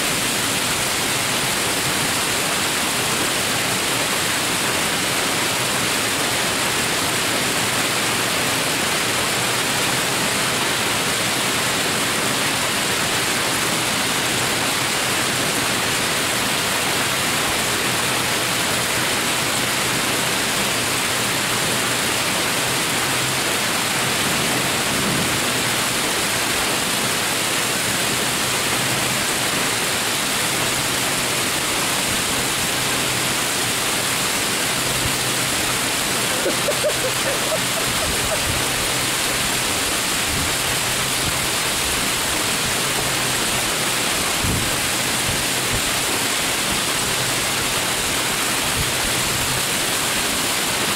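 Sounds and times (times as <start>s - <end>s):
torrential rain on pavement: 0.0s - 50.9s.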